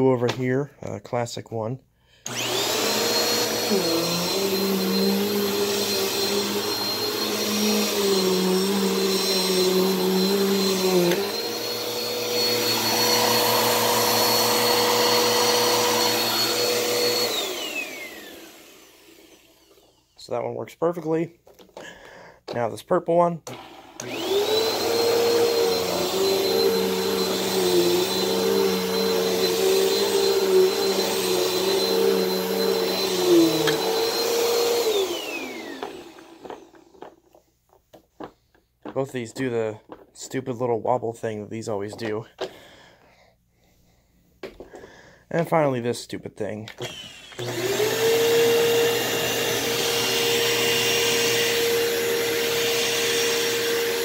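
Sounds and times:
vacuum cleaner motor whine: 2.3s - 20.2s, 23.5s - 37.2s, 46.8s - 54.0s.

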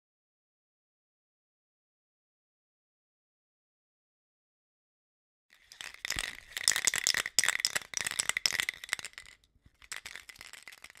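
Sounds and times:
spray can ball rattling: 5.6s - 11.0s.

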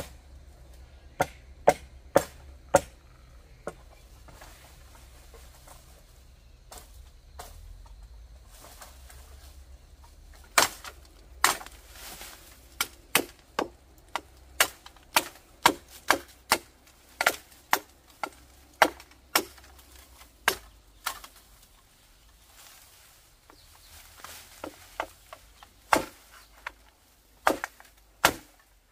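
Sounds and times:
sharp chopping knocks: 1.2s - 3.0s, 12.8s - 19.7s, 25.9s - 26.2s, 27.4s - 28.6s.

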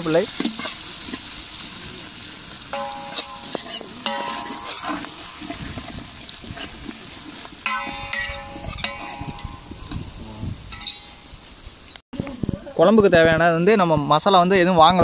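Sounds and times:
vegetables sizzling in hot oil: 0.0s - 11.9s
ladle stirring and scraping pot: 0.3s - 1.3s, 2.8s - 11.2s.

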